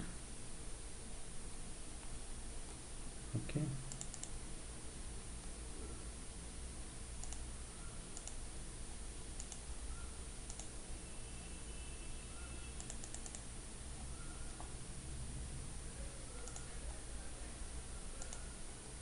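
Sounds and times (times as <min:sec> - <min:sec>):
steady low hiss: 0:00.0 - 0:19.0
computer mouse clicks: 0:03.9 - 0:04.4, 0:07.2 - 0:07.5, 0:08.1 - 0:08.4, 0:09.3 - 0:09.7, 0:10.4 - 0:10.8, 0:12.4 - 0:13.5, 0:16.4 - 0:16.8, 0:18.2 - 0:18.6.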